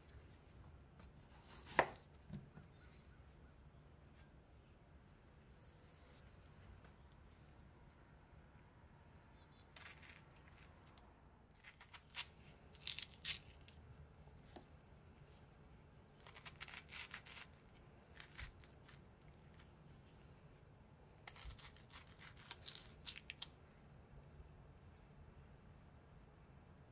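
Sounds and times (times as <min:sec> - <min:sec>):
spoon scraping raw potato: 0:09.6 - 0:13.6, 0:16.2 - 0:17.6.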